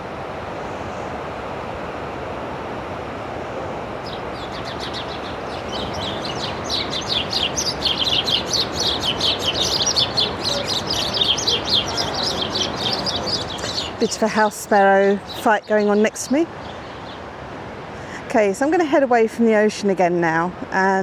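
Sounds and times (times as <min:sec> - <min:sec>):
steady background rush: 0:03.4 - 0:18.3
sparrows chirping: 0:04.0 - 0:17.4.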